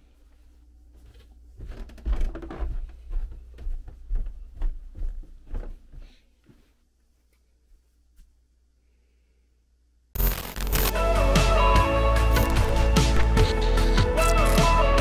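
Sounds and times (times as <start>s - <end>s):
footsteps on carpeted stairs: 0.1s - 8.4s.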